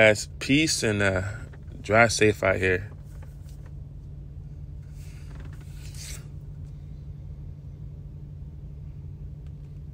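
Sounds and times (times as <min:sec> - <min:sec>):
truck idling hum: 0:00.0 - 0:09.9
rubbing scraping noise: 0:04.9 - 0:06.4.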